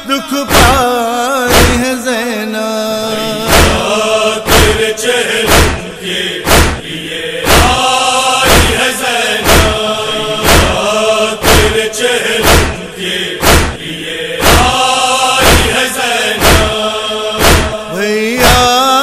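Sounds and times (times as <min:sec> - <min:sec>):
solo male voice singing: 0:00.0 - 0:03.5, 0:17.9 - 0:19.0
male chorus chanting: 0:00.0 - 0:19.0.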